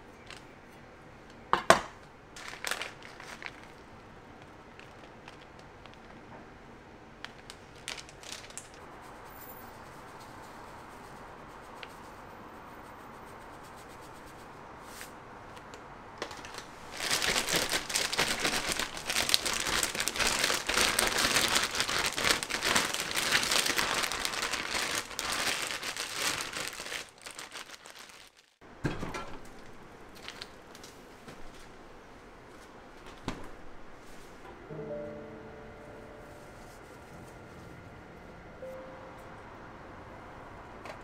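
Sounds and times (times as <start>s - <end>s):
plastic bag crinkling: 2.4s - 6.3s, 7.2s - 8.8s, 16.2s - 28.6s, 30.1s - 30.9s.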